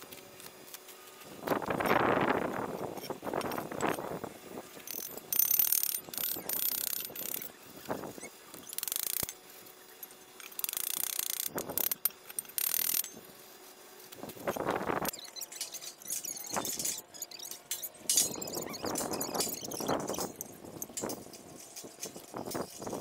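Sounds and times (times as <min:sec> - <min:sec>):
sharp metal clicks: 0:04.9 - 0:07.5, 0:08.5 - 0:09.4, 0:10.4 - 0:13.2, 0:15.1 - 0:22.8.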